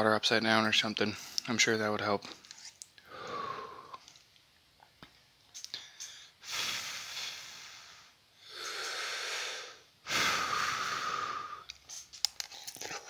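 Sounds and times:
man breathing out hard: 3.0s - 4.0s, 5.8s - 11.7s.

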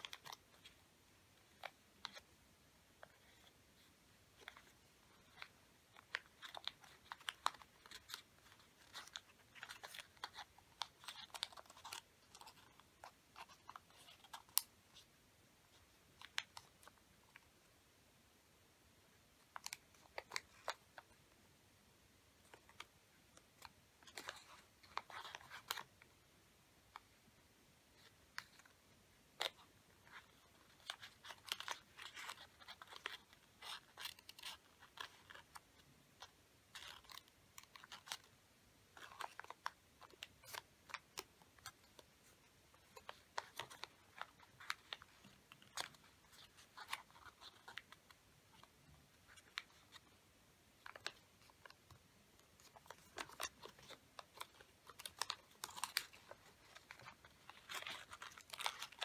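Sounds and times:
paper crinkling and creasing: 0.0s - 0.8s, 3.0s - 15.1s, 22.4s - 26.0s, 28.0s - 28.8s, 29.4s - 38.3s, 38.9s - 50.2s, 50.8s - 59.0s.

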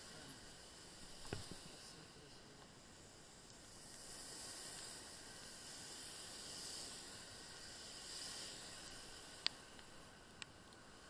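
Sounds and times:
tyres hissing on wet road: 0.0s - 11.0s.

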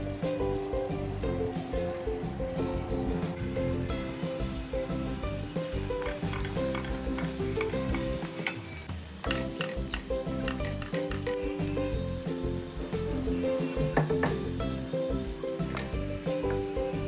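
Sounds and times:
soft background music: 0.0s - 17.0s
spice paste sizzling in a wok: 0.0s - 17.0s
wooden spatula scraping a wok: 5.9s - 11.6s.

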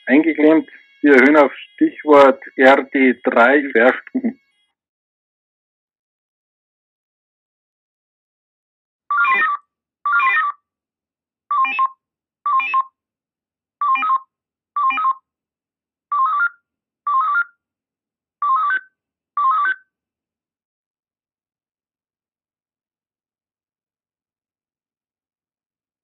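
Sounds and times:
sequential-tone radio beeps: 0.0s - 4.3s, 11.5s - 12.9s.

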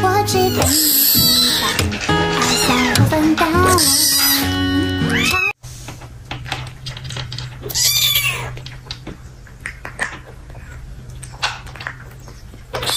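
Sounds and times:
kitten meowing: 0.3s - 1.8s, 2.4s - 4.5s, 5.1s - 5.5s, 7.7s - 8.5s.

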